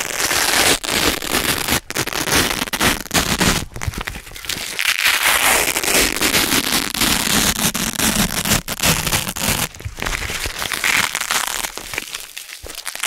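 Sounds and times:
velcro strips ripping apart: 0.0s - 13.0s.

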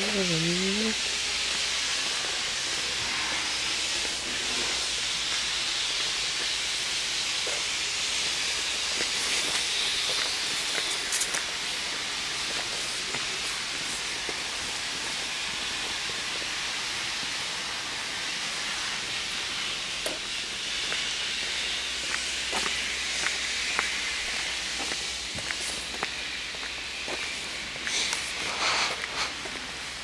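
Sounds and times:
steady high hiss: 0.0s - 30.0s.

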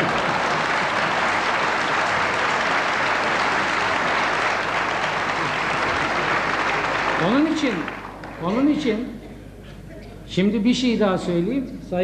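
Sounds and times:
large audience applauding: 0.0s - 8.6s.

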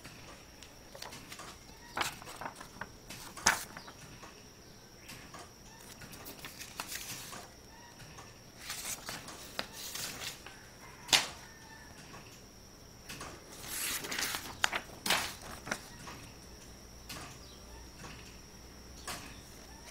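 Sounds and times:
paper rustling and sliding: 0.9s - 4.0s, 5.8s - 7.5s, 8.6s - 10.4s, 13.5s - 16.0s
sharp paper snap: 11.1s - 11.4s.

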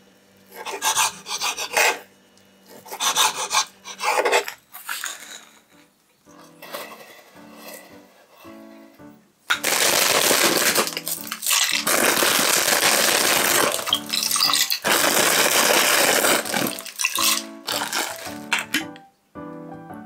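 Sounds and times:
light background music: 5.6s - 20.0s
pasta pouring into pot of water: 9.6s - 18.6s.

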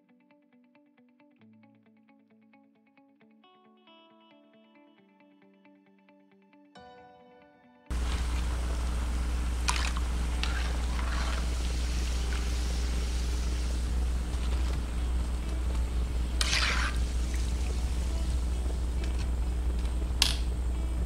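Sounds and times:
food sizzling in hot oil: 7.9s - 19.4s
oil crackles: 7.9s - 20.7s
strong low hum: 7.9s - 21.0s.

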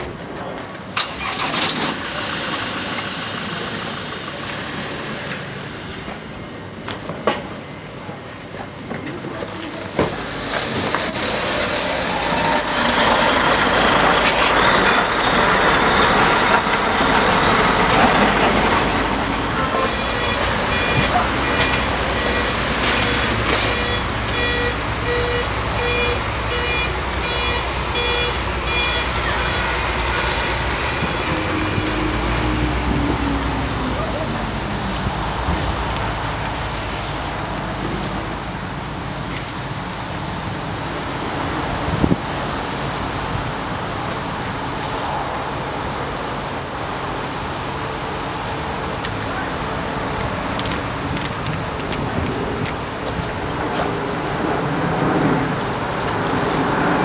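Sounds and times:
truck engine rumbling: 0.0s - 57.0s
reversing alarm beeping: 19.4s - 32.3s.

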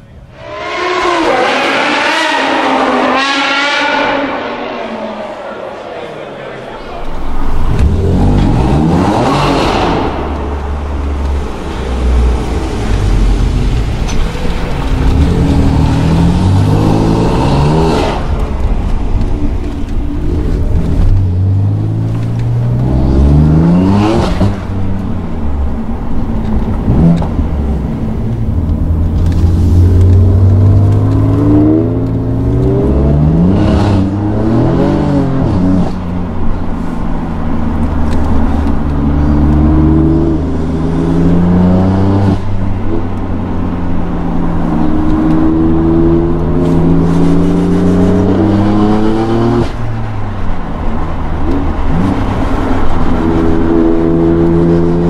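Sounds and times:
car engine accelerating hard: 7.5s - 25.1s, 37.6s - 49.8s, 51.3s - 55.0s.

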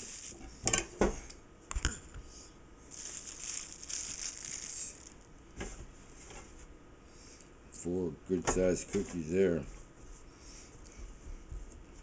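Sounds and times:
rustling: 0.0s - 0.6s, 2.9s - 6.6s.

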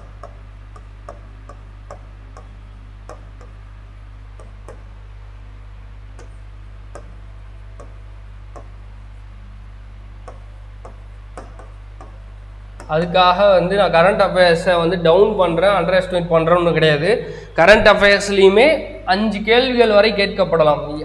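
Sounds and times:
stylus tapping on glass: 0.0s - 3.6s, 4.4s - 5.0s, 6.2s - 7.2s, 7.8s - 8.8s, 10.2s - 13.0s
low electrical hum: 0.0s - 21.0s.

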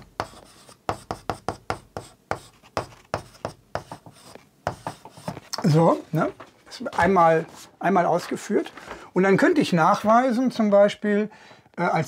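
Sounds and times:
chalk writing on chalkboard: 0.0s - 5.6s.

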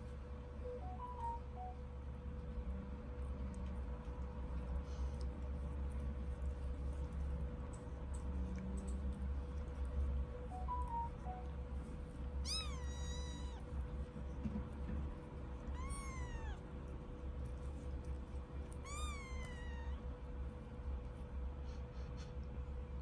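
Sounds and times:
low steady hum: 0.0s - 23.0s
kitten meowing: 12.4s - 13.7s, 15.7s - 16.6s, 18.8s - 20.0s.

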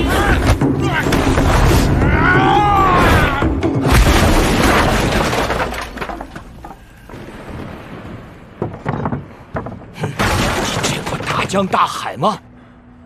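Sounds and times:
heavy crash with breaking: 3.8s - 6.6s
small knocks: 8.5s - 11.6s.

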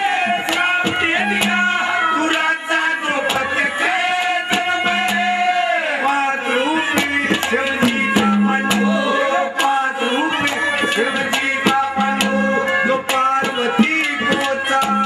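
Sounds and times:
harmonium: 0.0s - 15.0s
man singing into a microphone: 0.0s - 15.0s
hand drum beat: 0.3s - 2.5s, 3.3s - 5.6s, 6.9s - 9.7s, 10.4s - 15.0s.

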